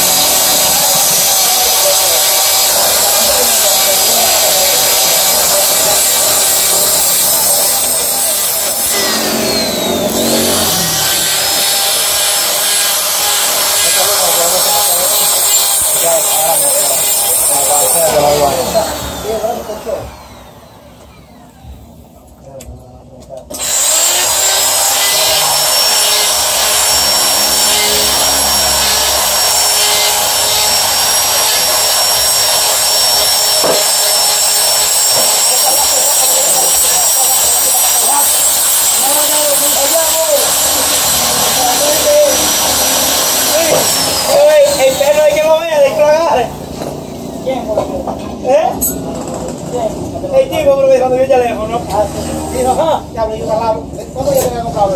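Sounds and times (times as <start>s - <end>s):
die grinder whining: 0.0s - 22.1s, 23.5s - 54.6s.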